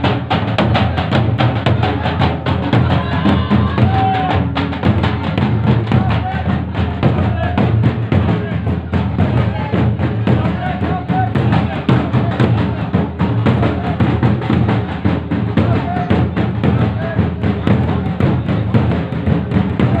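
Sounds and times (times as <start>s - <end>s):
crowd voices: 0.0s - 20.0s
loud fast drumming: 0.0s - 20.0s.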